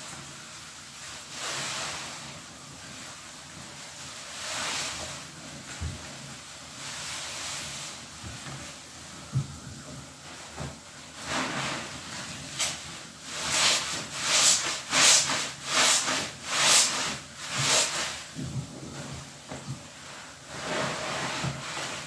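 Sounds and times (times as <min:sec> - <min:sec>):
soapy sponge squelching: 0:11.2 - 0:18.3.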